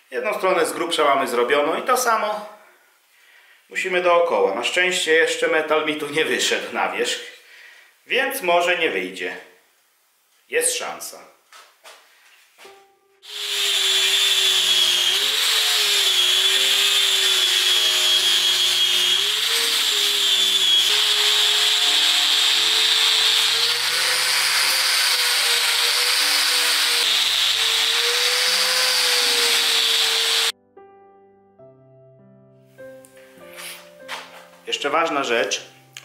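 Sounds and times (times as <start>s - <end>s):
angle grinder sanding rubber: 13.2s - 30.5s.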